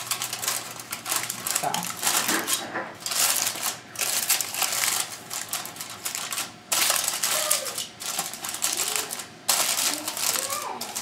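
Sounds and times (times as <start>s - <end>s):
aluminium foil crinkling: 0.0s - 11.0s.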